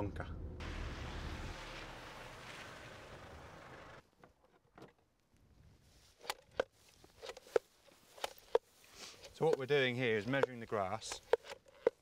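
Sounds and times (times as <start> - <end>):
plate meter clacking on ground: 9.3 - 12.0.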